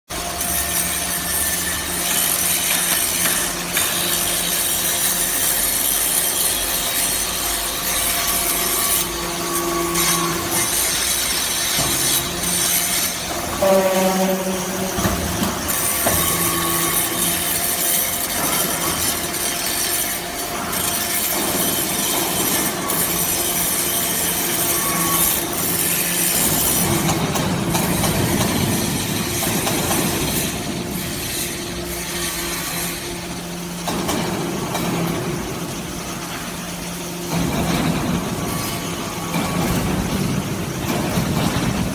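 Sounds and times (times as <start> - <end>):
hydraulic motor hum: 2.6 - 41.9
metal turnings rattling on conveyor: 14.6 - 41.9.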